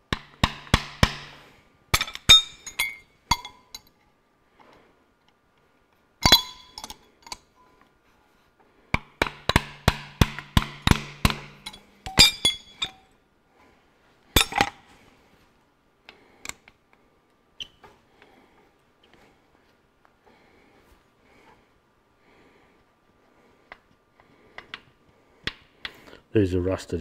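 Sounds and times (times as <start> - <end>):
small hammer tapping metal: 0.1 - 1.4, 9.0 - 13.0.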